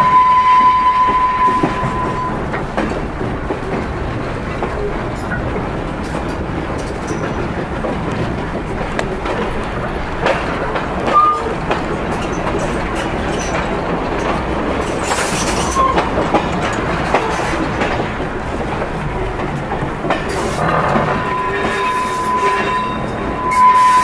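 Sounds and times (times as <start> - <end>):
wheel squeals: 0.0 - 2.4, 11.1 - 11.6, 20.3 - 24.0
wheels rumbling on rail: 0.0 - 24.0.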